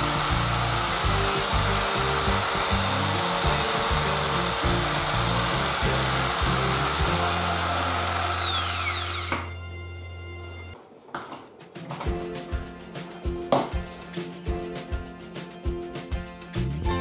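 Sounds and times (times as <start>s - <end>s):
reciprocating saw running: 0.0s - 9.5s.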